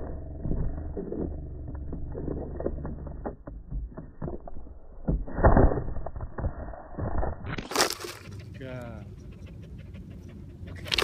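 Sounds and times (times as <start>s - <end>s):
low rumble: 0.0s - 11.0s
board rattling: 0.6s - 8.3s.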